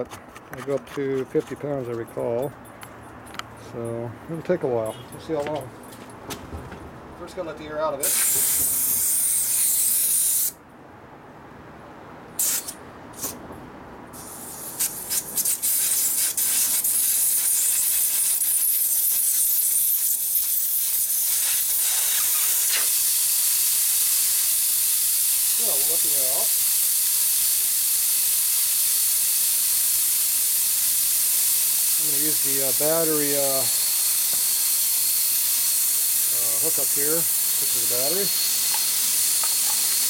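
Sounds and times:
air hissing from tire valve: 0:08.0 - 0:10.6, 0:12.4 - 0:13.4, 0:14.1 - 0:40.0.

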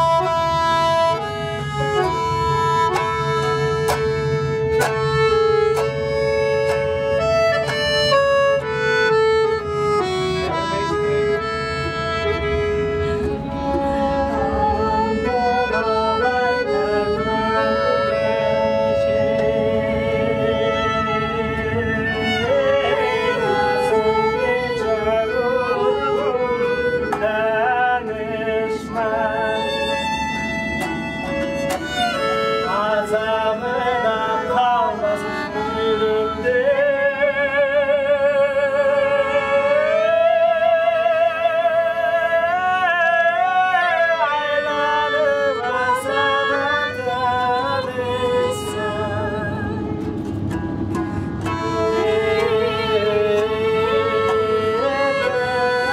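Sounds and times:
steady low hum: 0:00.0 - 0:55.9
violin slow melody: 0:00.0 - 0:55.9
man singing: 0:14.3 - 0:30.2, 0:32.4 - 0:50.0, 0:51.7 - 0:55.9.

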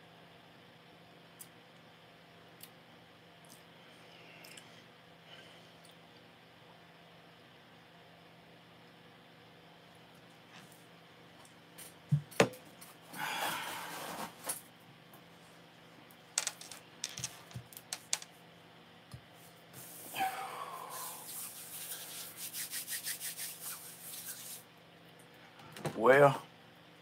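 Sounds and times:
hands rubbing together: 0:19.8 - 0:20.2, 0:20.9 - 0:24.7.

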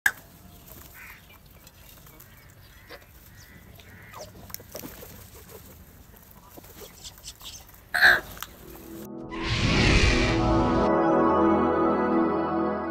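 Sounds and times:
beaks pecking at food: 0:00.1 - 0:08.7
crows cawing: 0:00.9 - 0:01.4, 0:02.2 - 0:04.6, 0:08.0 - 0:08.4.

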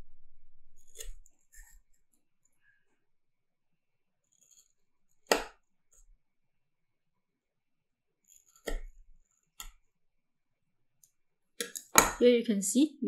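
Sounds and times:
knife cutting onion on tile: 0:00.7 - 0:02.0, 0:04.2 - 0:06.1, 0:08.2 - 0:09.8.

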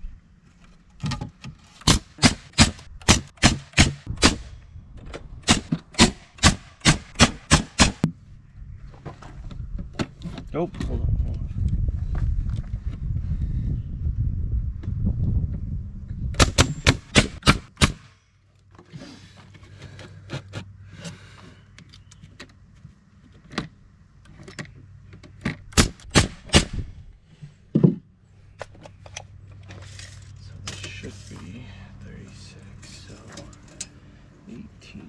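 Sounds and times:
hammering nails into wood: 0:01.8 - 0:04.5, 0:05.4 - 0:08.1, 0:16.4 - 0:18.0, 0:25.7 - 0:26.8
low rumble: 0:10.7 - 0:17.2.

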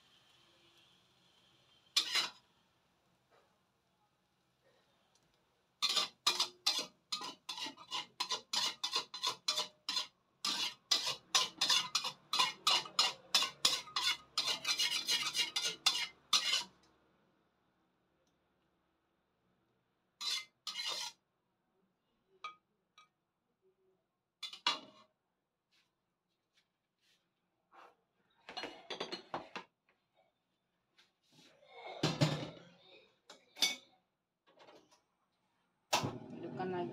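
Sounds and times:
metal spatula scraping wok: 0:01.9 - 0:02.5, 0:05.8 - 0:16.8, 0:20.2 - 0:21.2, 0:24.4 - 0:25.1.

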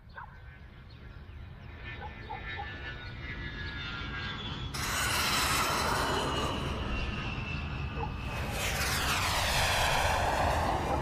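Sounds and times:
low rumble: 0:04.8 - 0:11.0
loud rush of noise: 0:08.3 - 0:11.0.

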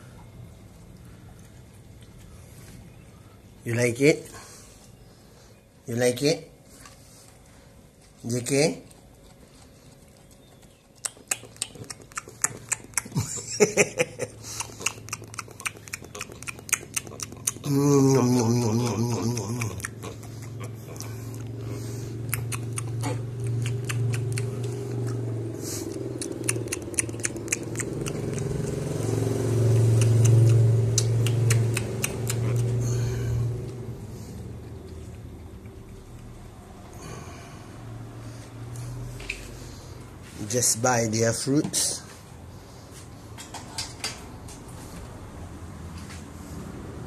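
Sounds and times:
monkey chewing corn: 0:08.7 - 0:13.4, 0:14.3 - 0:17.7, 0:18.4 - 0:33.8
low hum with falling pitch: 0:17.6 - 0:39.3.

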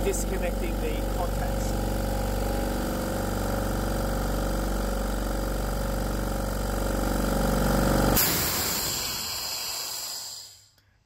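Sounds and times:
air compressor running: 0:00.0 - 0:10.8
hiss of air: 0:08.2 - 0:10.8.

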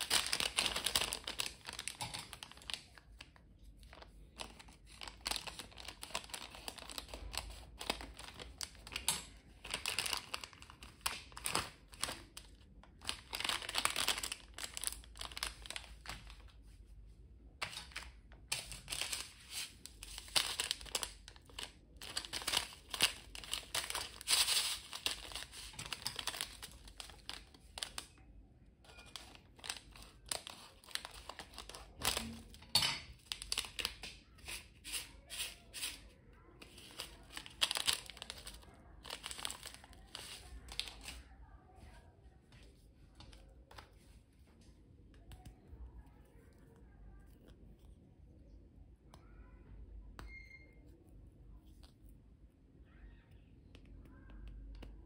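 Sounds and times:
plastic snack packet crinkling: 0:00.0 - 0:16.7, 0:17.6 - 0:35.3, 0:35.9 - 0:41.4.

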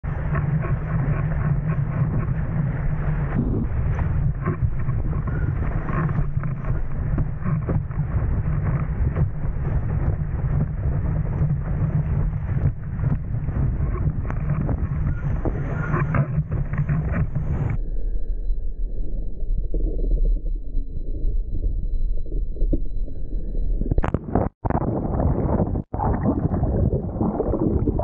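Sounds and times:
wind buffeting microphone: 0:00.0 - 0:17.8
board slapping water: 0:00.1 - 0:17.8.

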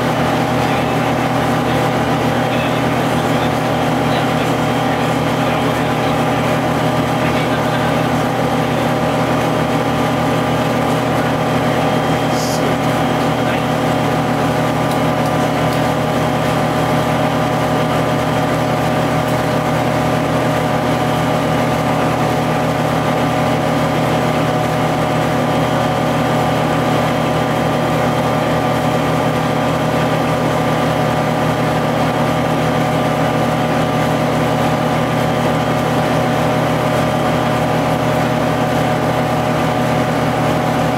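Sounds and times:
bus diesel engine running: 0:00.0 - 0:40.9.

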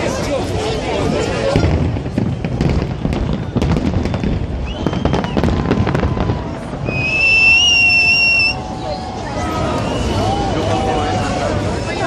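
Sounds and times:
fireworks cracking and popping: 0:00.0 - 0:08.7
steady high whistle: 0:04.1 - 0:05.6, 0:06.8 - 0:10.5.

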